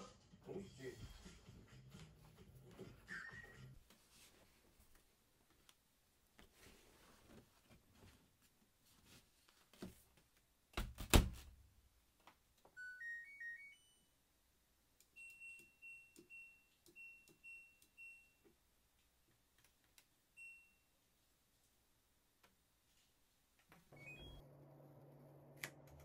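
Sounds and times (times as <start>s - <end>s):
washing machine beeps: 12.8s - 14.1s, 15.2s - 18.4s, 20.4s - 20.9s, 23.9s - 24.5s.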